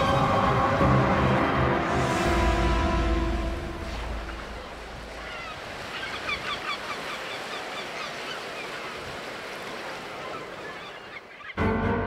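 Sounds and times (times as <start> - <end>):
background music: 0.0 - 5.0, 11.6 - 12.0
surf washing: 0.0 - 11.6
seabirds calling: 0.0 - 11.7.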